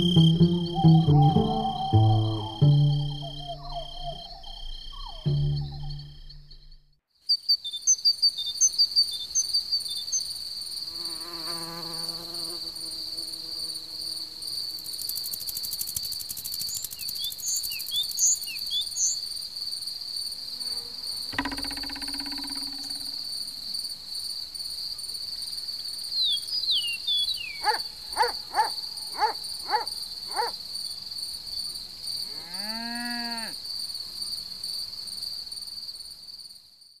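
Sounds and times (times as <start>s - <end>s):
sweeping up and down sound: 0.0s - 6.4s
short chirps: 0.0s - 7.5s
cricket trilling: 0.0s - 35.6s.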